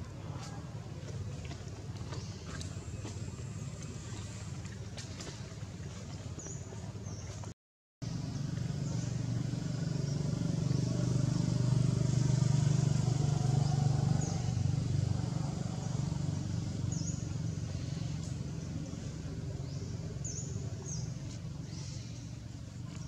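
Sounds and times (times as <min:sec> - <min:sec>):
vehicle engine droning: 0:08.0 - 0:23.0.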